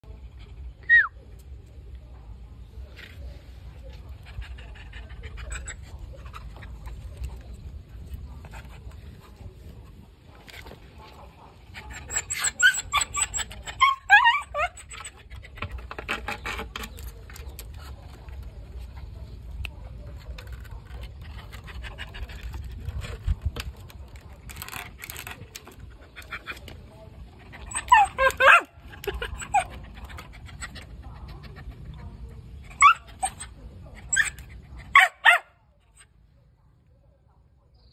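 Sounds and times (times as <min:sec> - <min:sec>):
dog whimpering: 0:11.9 - 0:15.0.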